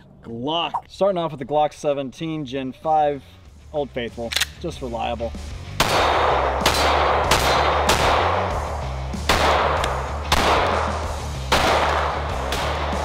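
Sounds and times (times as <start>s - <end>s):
background music with bass line: 2.8s - 13.0s
pistol shots echoing: 5.8s - 8.6s, 9.3s - 13.0s.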